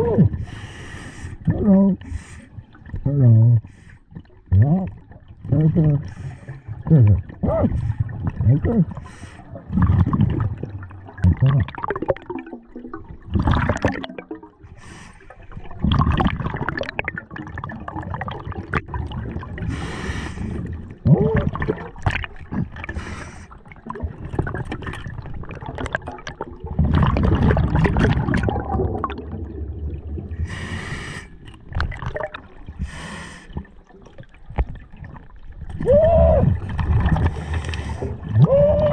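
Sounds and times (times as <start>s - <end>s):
bubbling exhaled air: 5.6s - 33.8s
hissing regulator inhales: 30.4s - 31.4s.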